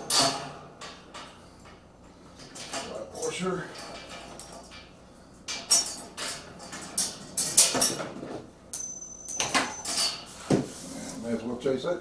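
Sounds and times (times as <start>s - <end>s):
metal washers and bolt clinking: 8.7s - 10.3s.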